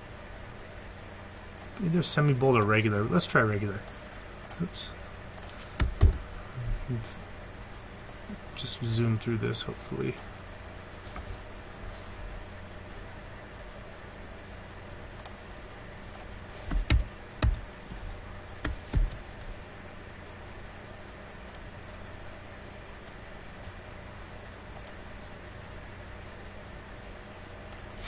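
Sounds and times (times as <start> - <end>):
deep thuds: 5.8 - 6.2, 18.6 - 19.2.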